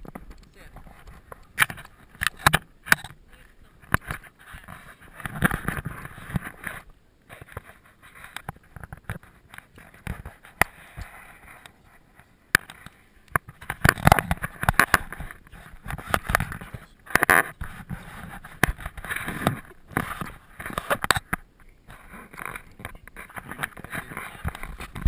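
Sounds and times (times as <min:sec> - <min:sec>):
camera handling knocks and scrapes: 0:12.6 - 0:25.0.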